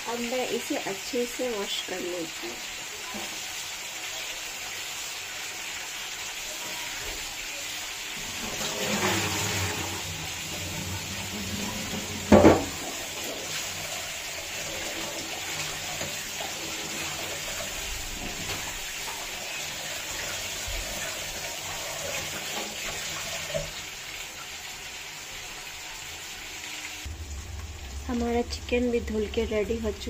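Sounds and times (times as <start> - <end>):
rinsing in steel bowl: 6.4 - 30.0
tap running into steel sink: 11.6 - 13.0
loud knock: 12.3 - 12.7.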